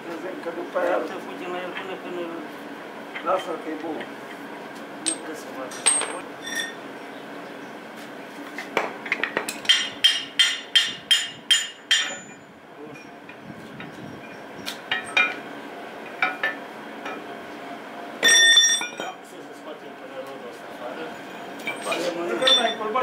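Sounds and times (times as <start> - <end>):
metal clang ringing: 5.1 - 6.7, 9.7 - 12.4, 18.2 - 19.2, 21.6 - 22.8
hammer striking steel: 9.6 - 12.4.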